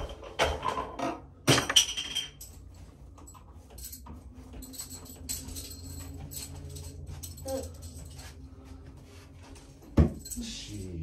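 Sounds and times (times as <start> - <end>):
metal spikes clinking: 2.0 - 8.2.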